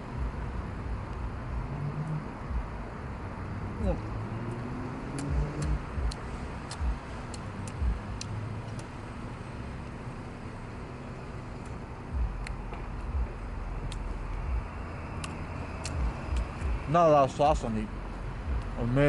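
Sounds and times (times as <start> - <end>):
low rumble of traffic: 0.0 - 19.0
wet chewing mouth clicks: 5.2 - 8.9
low thumps: 7.8 - 8.2, 12.1 - 14.7.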